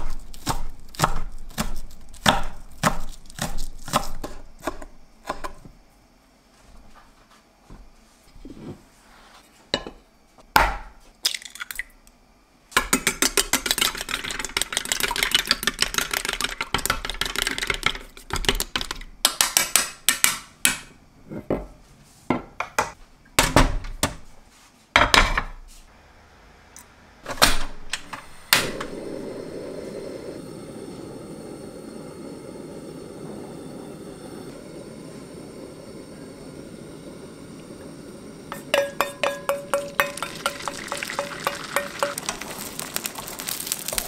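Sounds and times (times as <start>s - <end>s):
gas burner rushing: 27.4s - 40.6s
chopsticks beating egg in metal bowl: 38.5s - 42.3s.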